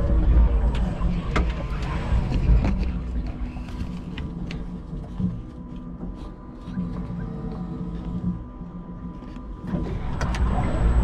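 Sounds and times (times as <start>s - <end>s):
electric forklift driving: 7.0s - 11.0s.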